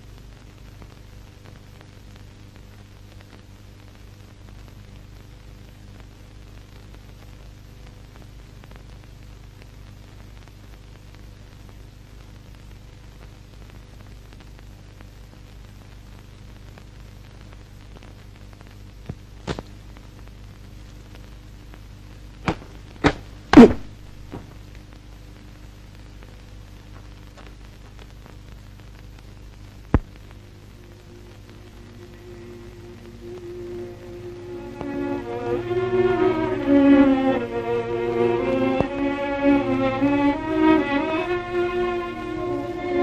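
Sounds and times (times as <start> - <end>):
film soundtrack hum and hiss: 0.0 - 43.0
short sharp thuds: 22.4 - 24.6.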